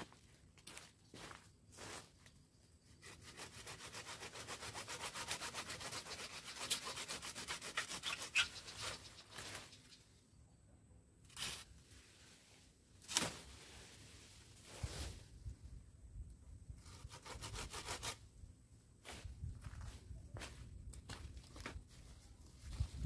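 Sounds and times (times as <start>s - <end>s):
hand saw cutting branch: 3.0s - 9.4s, 16.8s - 18.2s.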